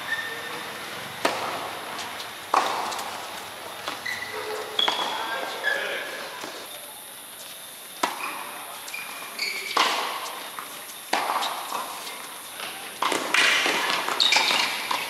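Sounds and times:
shoe squeaks: 0:00.0 - 0:00.8, 0:01.9 - 0:06.7, 0:07.5 - 0:12.6, 0:14.0 - 0:15.0
racket hitting tennis ball: 0:00.8 - 0:06.6, 0:08.0 - 0:08.5, 0:09.6 - 0:15.0.

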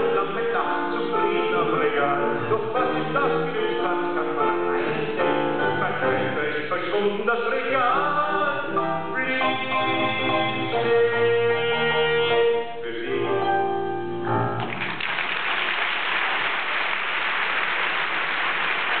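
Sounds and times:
person singing with piano: 0:00.0 - 0:14.4
audience applause: 0:14.6 - 0:19.0.

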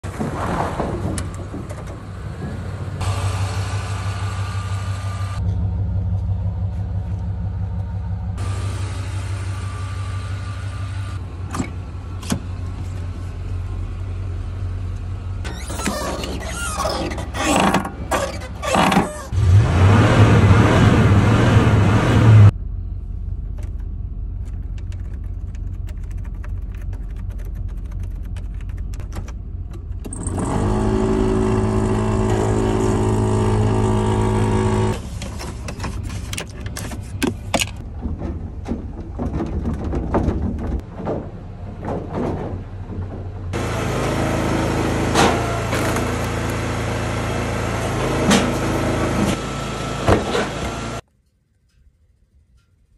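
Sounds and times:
log splitter engine running: 0:01.1 - 0:19.2, 0:29.4 - 0:51.0
pickup engine running: 0:02.0 - 0:15.6, 0:21.2 - 0:39.2.

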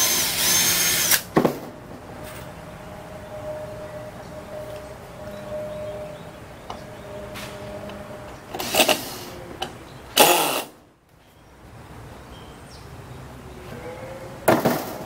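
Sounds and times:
cordless drill driving screws: 0:00.0 - 0:01.3, 0:10.2 - 0:10.7.

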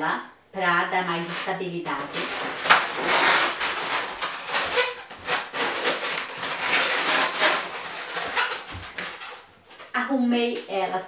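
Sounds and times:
latex balloons rubbing together: 0:01.2 - 0:09.6.

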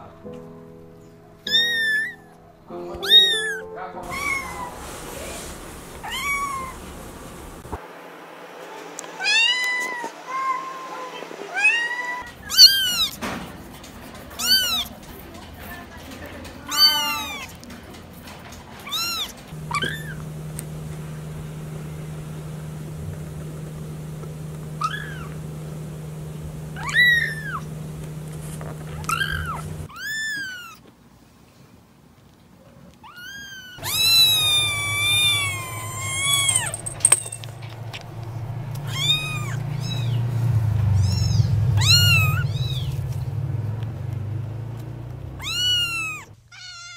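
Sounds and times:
kitten meowing: 0:01.4 - 0:02.4, 0:03.0 - 0:04.8, 0:06.0 - 0:06.8, 0:09.2 - 0:10.9, 0:11.5 - 0:13.2, 0:14.4 - 0:14.9, 0:16.7 - 0:17.5, 0:18.9 - 0:20.2, 0:24.8 - 0:25.3, 0:26.8 - 0:27.7, 0:29.0 - 0:30.8, 0:33.0 - 0:36.8, 0:38.9 - 0:40.3, 0:41.0 - 0:43.1, 0:45.4 - 0:46.9
steady low hum: 0:04.6 - 0:07.8, 0:19.5 - 0:29.9, 0:33.8 - 0:46.4.

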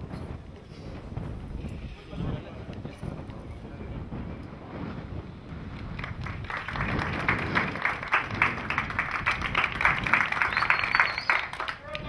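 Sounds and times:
people clapping: 0:05.7 - 0:12.0.

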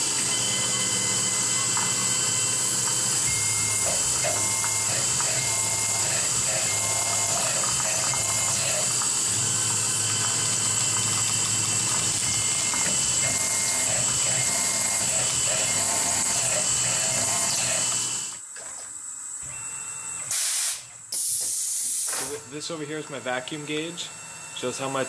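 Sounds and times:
end mill cutting metal: 0:00.0 - 0:18.4
milling spindle whine: 0:00.0 - 0:18.4, 0:22.3 - 0:25.0
short loud hiss: 0:20.3 - 0:22.2.

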